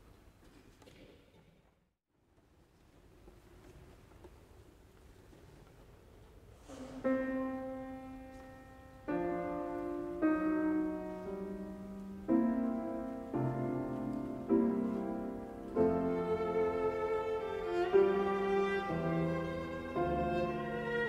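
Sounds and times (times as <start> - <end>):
grand piano chords: 6.7 - 21.0.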